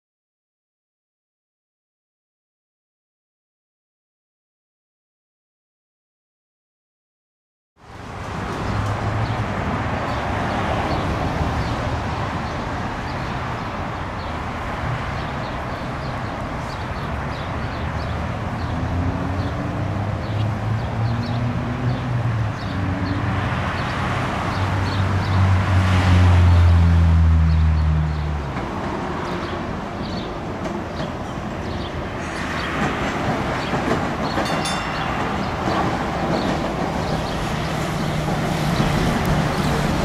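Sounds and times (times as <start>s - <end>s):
electric tram humming: 7.8s - 40.0s.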